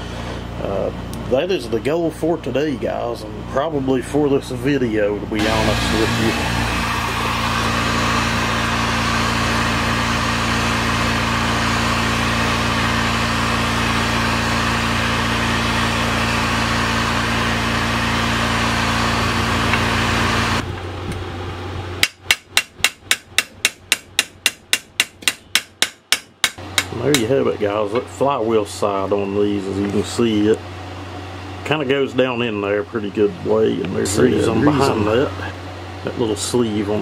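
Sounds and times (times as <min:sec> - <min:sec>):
heat gun blowing: 0:05.4 - 0:20.6
hammer tapping on driver: 0:22.0 - 0:27.3.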